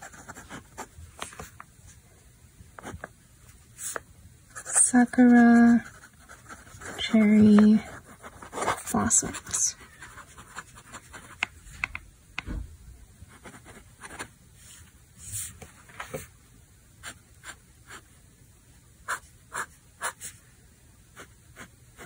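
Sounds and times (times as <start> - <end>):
fountain pen scratching on paper: 0.0 - 1.0, 3.8 - 11.5, 13.3 - 14.3, 19.1 - 20.4.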